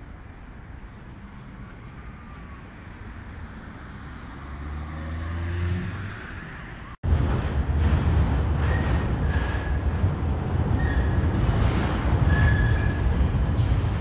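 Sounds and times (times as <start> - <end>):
traffic rumble: 0.0 - 14.0
car engine passing close: 2.9 - 7.0.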